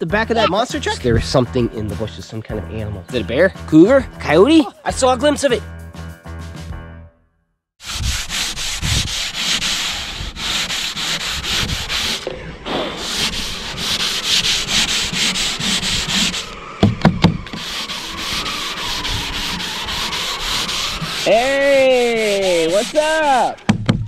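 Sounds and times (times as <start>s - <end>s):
sandpaper rasping on wood: 7.8s - 16.6s, 17.5s - 23.6s
low thuds: 16.8s - 17.7s, 23.6s - 24.0s.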